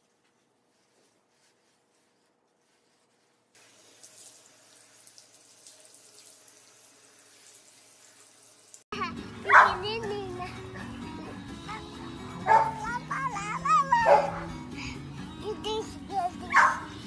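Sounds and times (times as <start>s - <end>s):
shower sprayer hissing: 3.6s - 8.8s.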